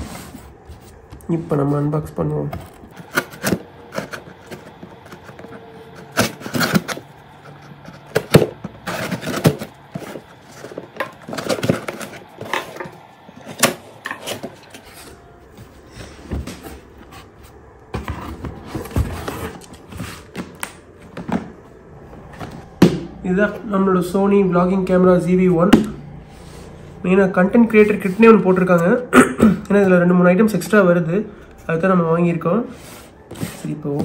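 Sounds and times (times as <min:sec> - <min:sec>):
cardboard scraping and knocking: 0:16.3 - 0:21.6.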